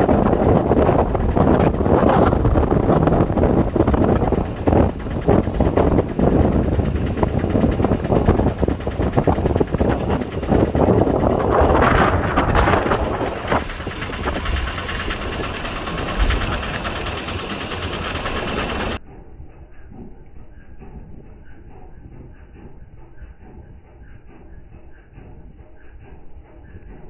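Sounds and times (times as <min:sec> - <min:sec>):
wind buffeting microphone: 0:00.0 - 0:19.0
ferry engine running: 0:00.0 - 0:27.0.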